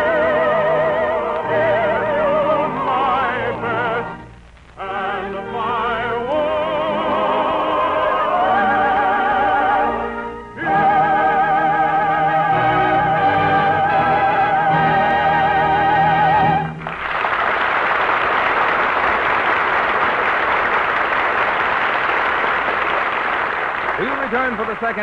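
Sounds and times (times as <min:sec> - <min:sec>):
person singing with vibrato: 0:00.0 - 0:16.8
orchestra playing: 0:04.9 - 0:17.0.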